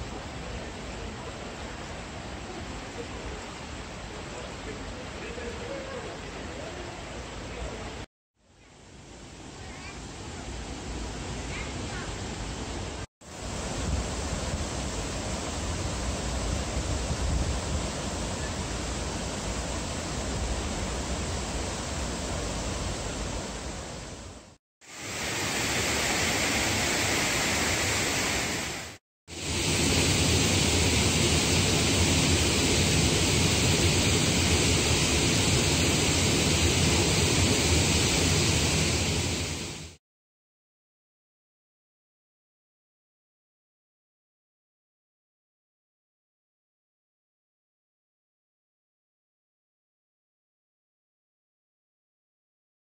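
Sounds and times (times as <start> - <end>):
stream cascade rushing: 9.0 - 40.0.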